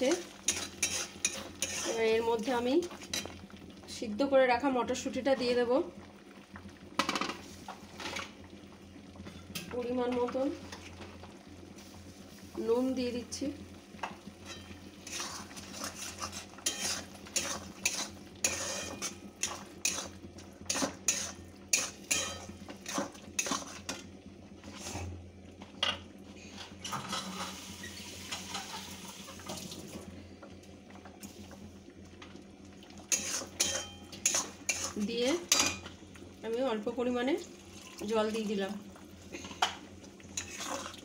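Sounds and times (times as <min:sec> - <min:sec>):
steel spatula scraping a metal pan: 0:00.4 - 0:02.1, 0:14.4 - 0:23.9, 0:33.1 - 0:35.8, 0:40.4 - 0:40.8.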